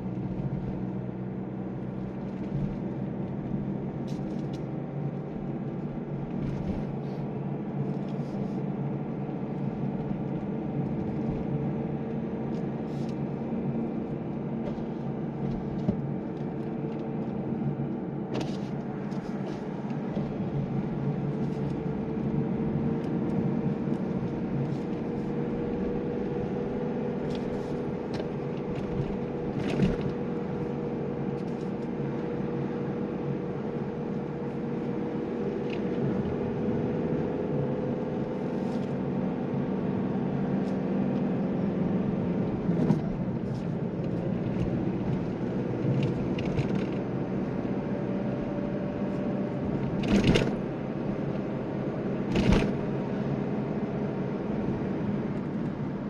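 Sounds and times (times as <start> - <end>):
car engine drone: 0.0 - 56.0
road noise: 0.0 - 56.0.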